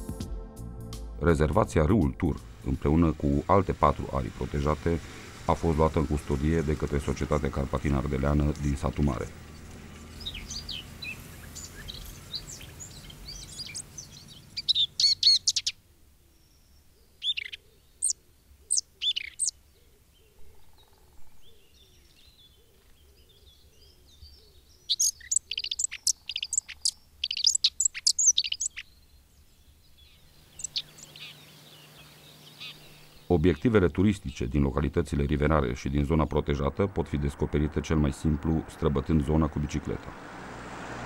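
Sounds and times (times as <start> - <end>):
low steady hum: 1.6 - 9.8
small songbirds chirping: 1.8 - 41.0.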